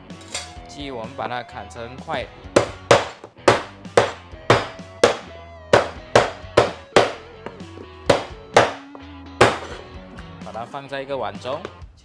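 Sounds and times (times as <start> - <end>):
background music: 0.0 - 12.0
cleaver chopping chicken bones: 2.6 - 9.8.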